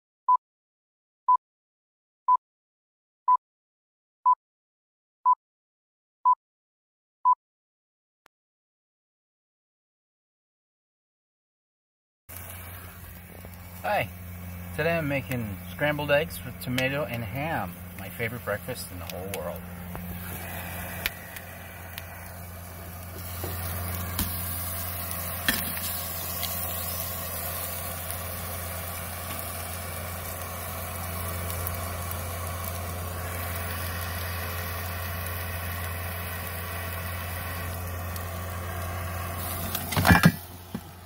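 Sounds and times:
steady low hum: 12.3 - 41.0
food sizzling in a pan: 19.7 - 40.9
stove and pan clattering: 39.5 - 40.9.

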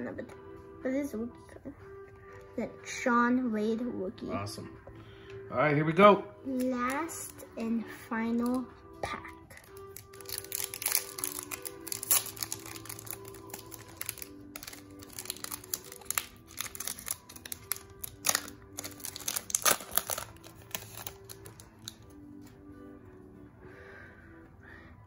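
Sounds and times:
background music: 0.0 - 25.0
wrapper tearing and crinkling: 9.5 - 22.1.

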